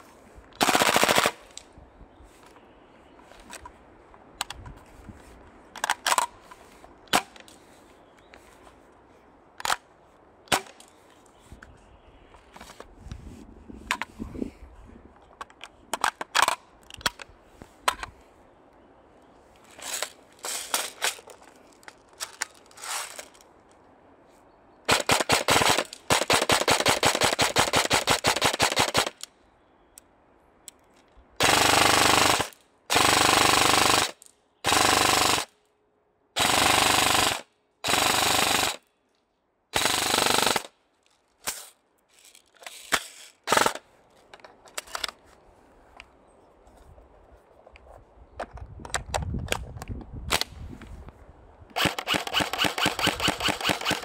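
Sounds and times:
airsoft guns firing: 0.6 - 1.4, 24.9 - 29.1, 51.8 - 54.0.

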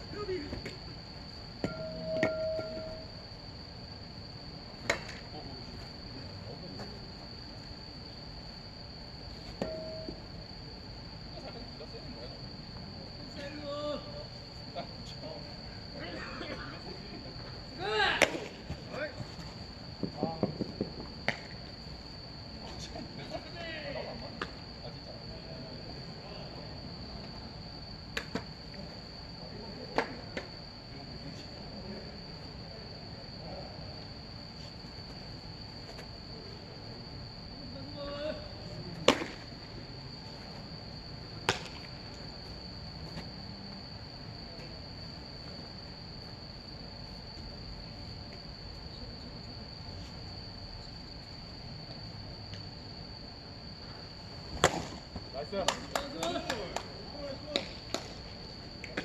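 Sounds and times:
crickets chirping: 0.0 - 59.0
sharp smacks: 41.4 - 41.9, 54.6 - 55.0.

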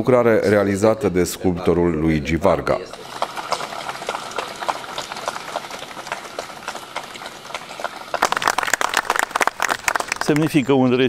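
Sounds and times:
crowd applauding: 2.7 - 10.9.

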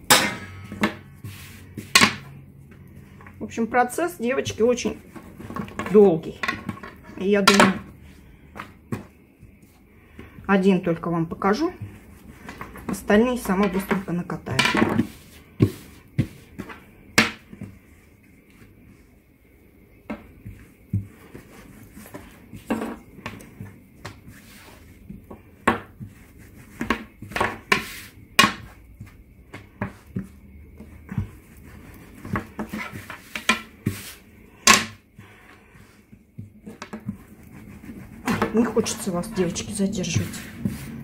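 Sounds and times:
hands rubbing on dough: 1.0 - 3.4, 8.0 - 41.0
rolling pin knocking on table: 25.6 - 26.1, 26.8 - 30.3.

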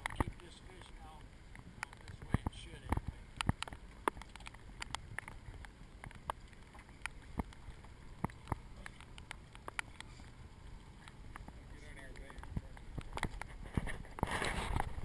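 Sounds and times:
irregular sharp ticks: 0.0 - 10.4
water around a boat: 0.0 - 15.0.

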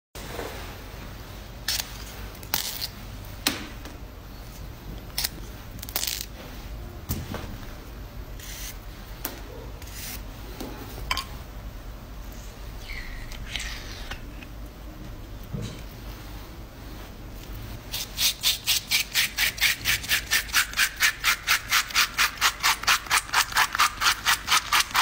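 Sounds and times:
knife cutting aloe leaf: 17.9 - 25.0.

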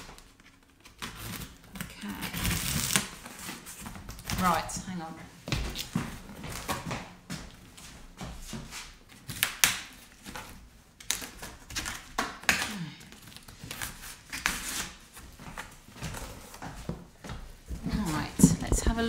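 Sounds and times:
cardboard box being torn open: 0.2 - 3.3.

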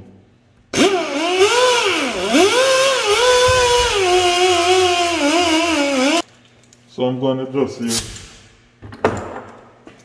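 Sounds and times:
air die grinder whining: 0.8 - 6.2.

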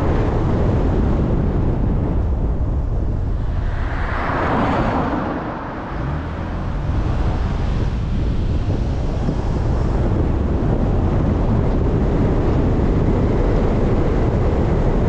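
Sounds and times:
low wind rumble on microphone: 0.0 - 15.0
vehicle passing by: 3.0 - 10.4.

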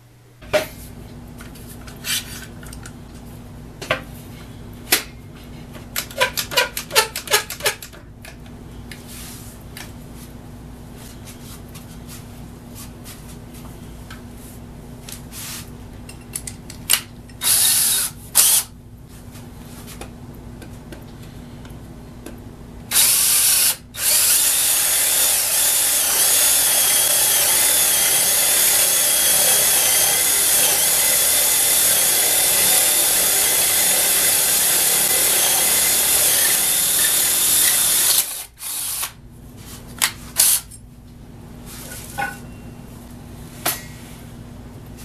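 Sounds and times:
cordless drill running: 17.4 - 18.7, 22.9 - 39.2.

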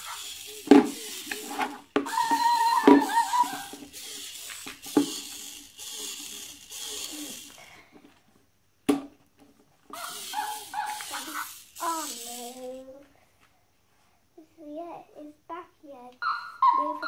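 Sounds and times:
robot dog toy electronic sounds: 0.0 - 7.6, 9.9 - 12.8, 16.2 - 17.0.

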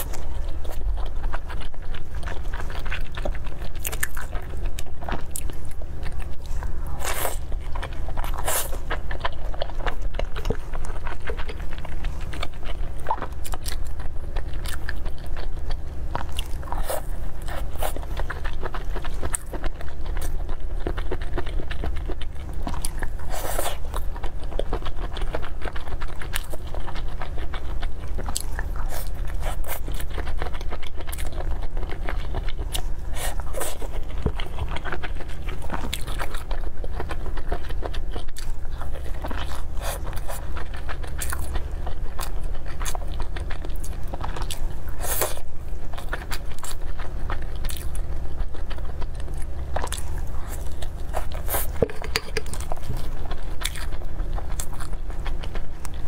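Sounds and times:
crunching pastry while chewing: 0.0 - 56.0
low steady hum: 0.0 - 56.0
wet mouth sounds: 47.6 - 55.0.

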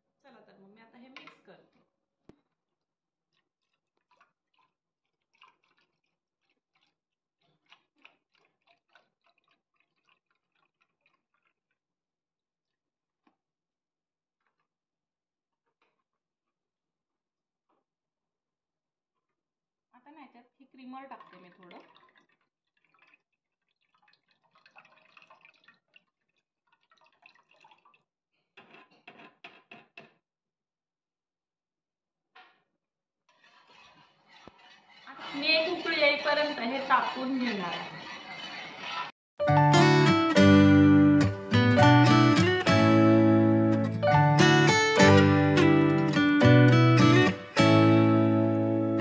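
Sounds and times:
cream trickling and dripping: 1.8 - 13.4, 20.6 - 29.6, 33.3 - 38.8
milk pouring into saucepan: 21.2 - 28.9.

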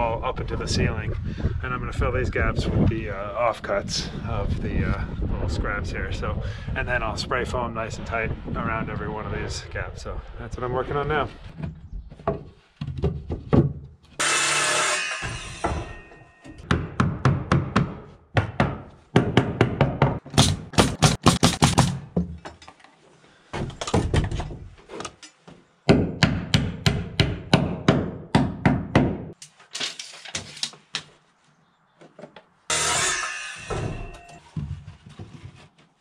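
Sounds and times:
hammer driving nails into wood: 16.6 - 22.3.

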